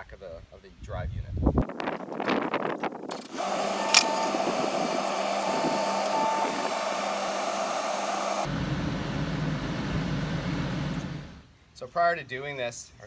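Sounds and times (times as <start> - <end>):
hydraulic whine: 3.1 - 11.4
skid steer engine: 3.2 - 11.4.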